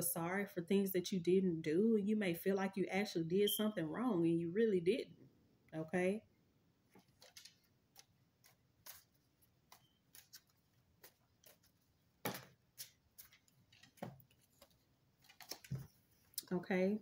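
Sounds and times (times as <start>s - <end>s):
cards being shuffled: 7.0s - 15.9s.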